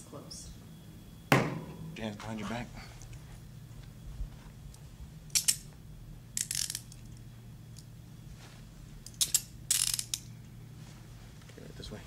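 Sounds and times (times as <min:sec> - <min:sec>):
handcuffs ratchet clicks: 0:05.3 - 0:05.6, 0:06.4 - 0:07.1, 0:09.1 - 0:10.3.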